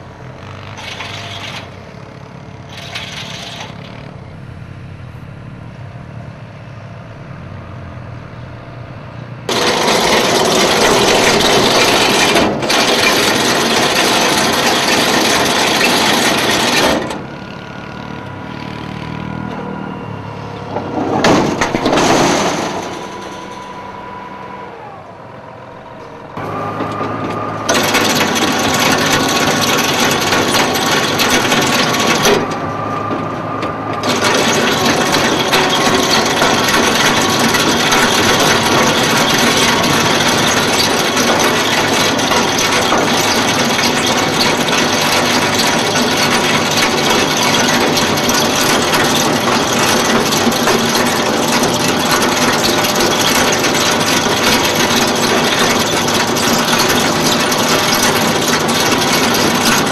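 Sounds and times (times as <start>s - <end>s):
hay bale machine running: 0.0s - 4.5s, 9.5s - 59.9s
steady mechanical whine: 0.0s - 59.9s.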